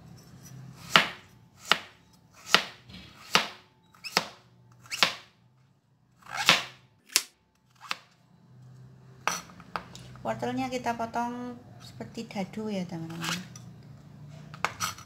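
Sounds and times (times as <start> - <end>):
knife chopping on cutting board: 0.8 - 5.3, 6.2 - 7.3.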